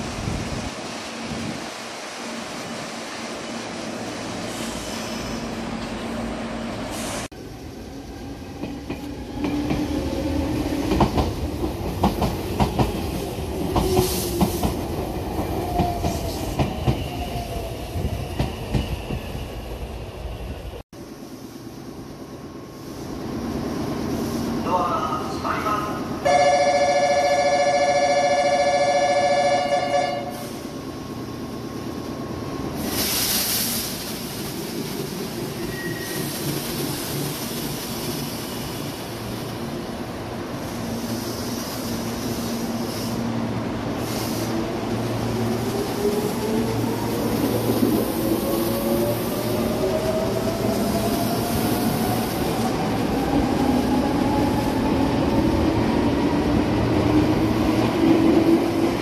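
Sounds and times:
air hiss: 32.8 - 34.8, 40.7 - 44.7.

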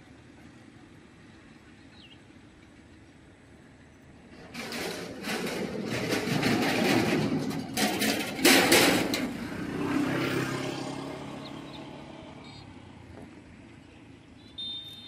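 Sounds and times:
motor vehicle passing: 8.2 - 15.0.

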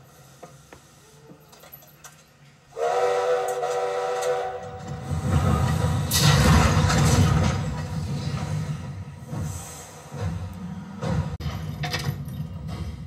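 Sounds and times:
train rumbling: 0.0 - 13.0
steam locomotive whistle: 2.7 - 5.1
steam hiss: 8.1 - 11.3.

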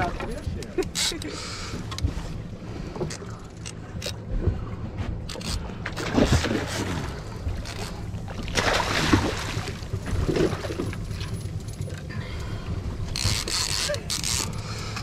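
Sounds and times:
steady low hum: 0.0 - 15.0
water rushing: 6.0 - 11.4.

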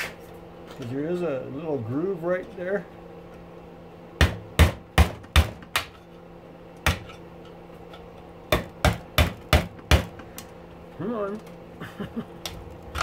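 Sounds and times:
hammer striking metal punch: 4.2 - 6.0, 6.8 - 7.2, 8.5 - 10.2.

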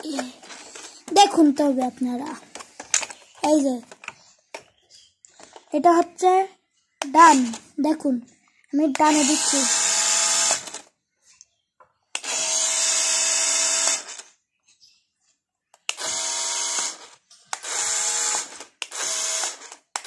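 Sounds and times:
toy car motor and gears whirring: 0.0 - 4.2, 7.1 - 7.7, 8.9 - 11.0, 12.1 - 14.4, 15.8 - 20.0.

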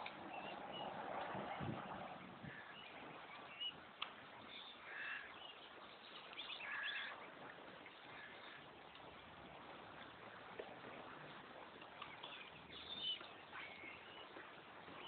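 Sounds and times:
faint steady hiss: 0.0 - 15.0
cygnets peeping: 11.2 - 15.0.

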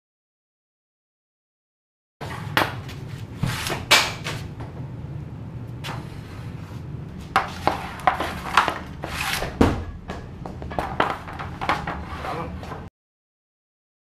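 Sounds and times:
hockey stick scraping plastic pad: 2.2 - 4.5, 5.9 - 12.9
heavier thud: 9.4 - 10.7.

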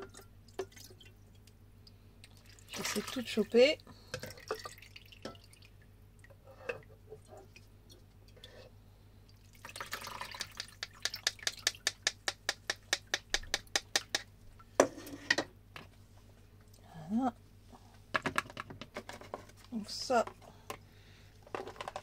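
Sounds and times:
liquid dripping into jar: 9.5 - 12.2.

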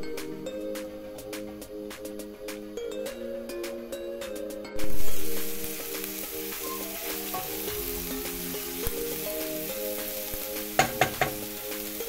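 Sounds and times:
background music: 0.0 - 12.0
onions sizzling in pan: 4.8 - 12.0.

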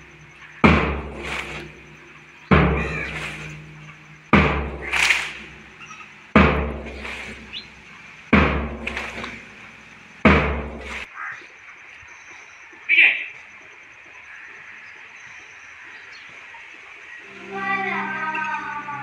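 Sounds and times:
slow drum beat: 0.0 - 11.1.

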